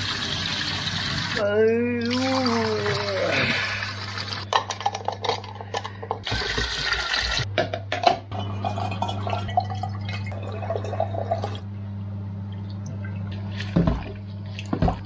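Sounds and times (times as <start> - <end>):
low hum: 8.2 - 15.0
gurgling pour: 8.4 - 11.6
liquid pouring rushing: 8.4 - 11.6.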